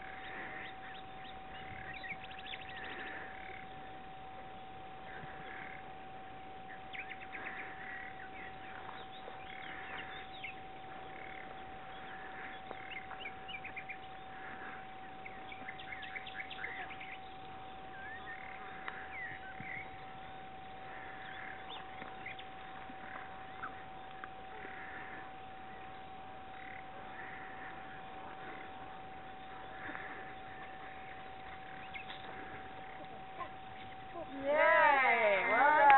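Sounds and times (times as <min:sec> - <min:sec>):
small birds chirping: 0:00.0 - 0:35.9
steady high-pitched tone: 0:00.0 - 0:35.9.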